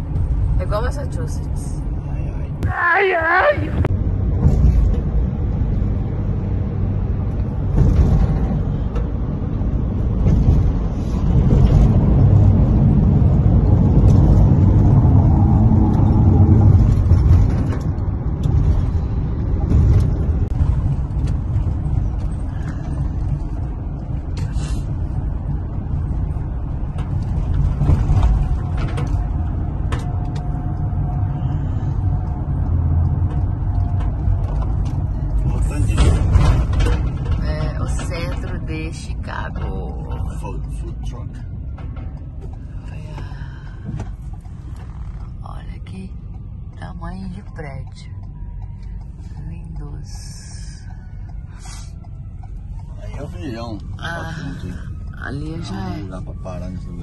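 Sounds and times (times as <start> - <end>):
vehicle engine and road rumble: 0.0 - 57.0.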